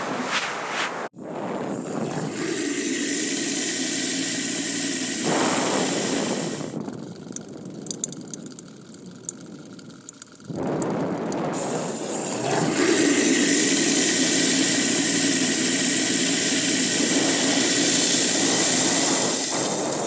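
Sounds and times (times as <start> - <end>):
water rushing: 1.4 - 20.0
water trickling and dripping: 6.2 - 11.6.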